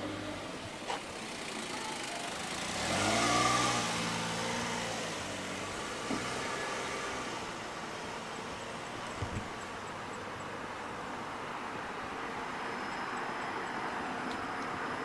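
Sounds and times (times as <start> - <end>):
car driving past: 1.2 - 8.9.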